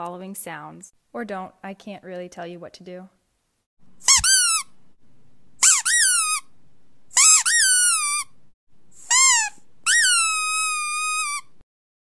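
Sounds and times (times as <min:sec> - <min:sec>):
squeaky dog toy squeezed: 0:04.0 - 0:04.8, 0:05.6 - 0:06.5, 0:07.1 - 0:08.4, 0:09.0 - 0:11.6.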